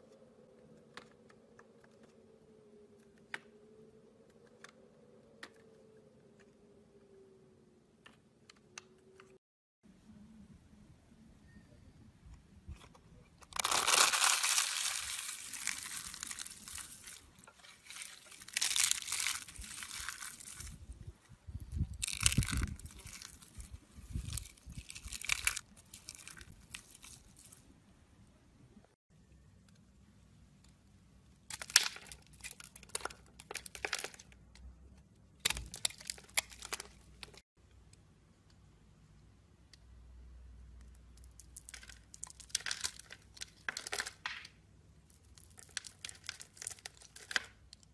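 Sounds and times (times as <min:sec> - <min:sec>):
soap curls crunching by hand: 0:13.4 - 0:21.0, 0:21.6 - 0:27.6, 0:31.5 - 0:34.4, 0:35.4 - 0:37.4, 0:41.2 - 0:44.5, 0:45.1 - 0:47.9.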